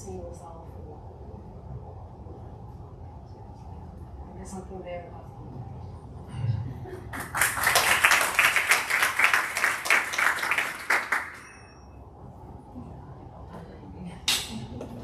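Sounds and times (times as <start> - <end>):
audience applauding: 7.1 - 11.6.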